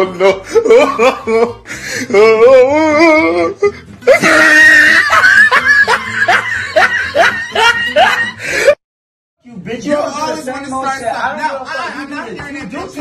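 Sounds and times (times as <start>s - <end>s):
loud scream: 4.1s - 5.6s.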